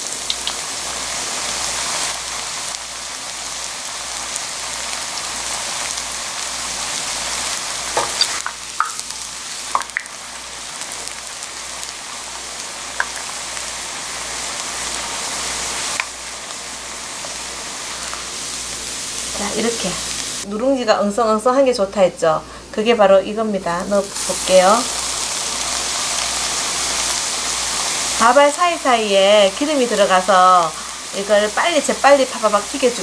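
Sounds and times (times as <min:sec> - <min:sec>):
hot oil sizzling: 0:00.0 - 0:33.0.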